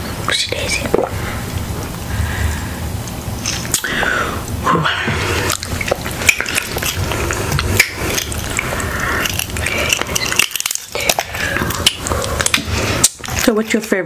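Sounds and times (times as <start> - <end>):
wet smacking eating sounds: 3.0 - 13.6.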